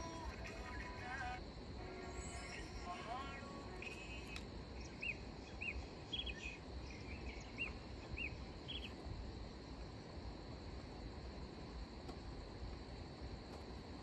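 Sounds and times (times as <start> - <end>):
insects droning: 0.0 - 14.0
low background rumble: 0.0 - 14.0
bird chirping: 3.8 - 9.0.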